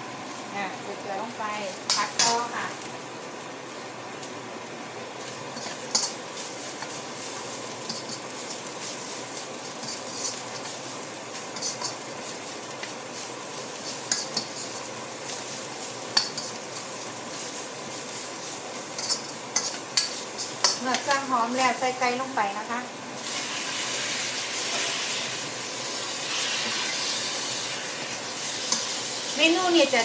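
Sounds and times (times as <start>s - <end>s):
paste sizzling in oil: 0.0s - 30.0s
metal spatula scraping a wok: 5.2s - 21.2s, 23.2s - 29.0s.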